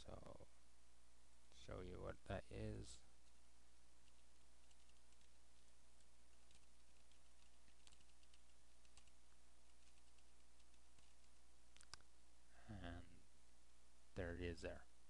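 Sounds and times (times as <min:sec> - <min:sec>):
faint keyboard typing: 0:04.0 - 0:12.1.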